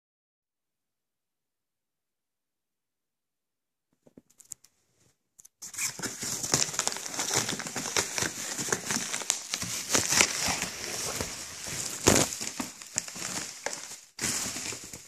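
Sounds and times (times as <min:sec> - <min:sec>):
bubble wrap crinkling: 0:05.6 - 0:15.0.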